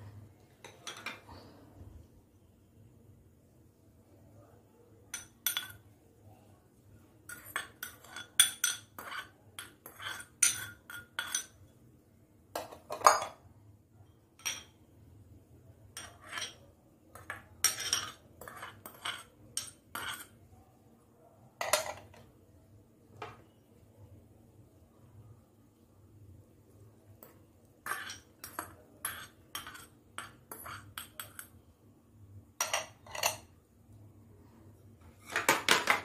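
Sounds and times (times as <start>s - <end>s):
steel spoon clinking on bowls: 5.1s - 5.8s, 7.3s - 11.7s, 14.4s - 14.8s, 15.9s - 20.4s, 27.2s - 31.6s, 32.6s - 33.5s.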